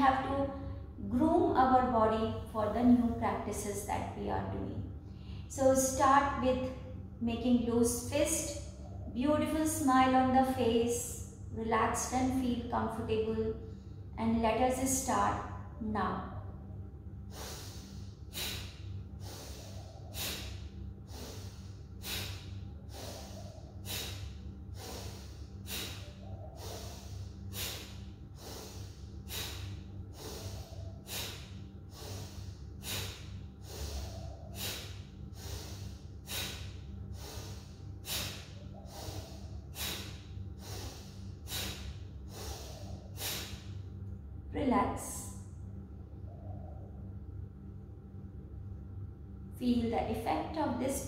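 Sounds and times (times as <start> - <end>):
woman breathing forcefully through nose: 17.1 - 44.0.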